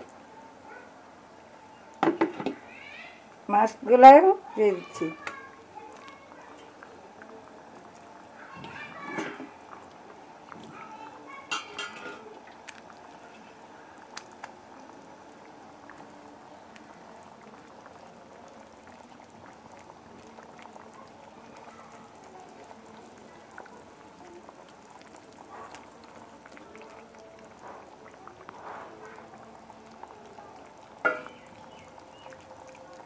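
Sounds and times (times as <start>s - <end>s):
curry bubbling in a pan: 0.0s - 33.0s
faint clicks: 14.1s - 14.6s.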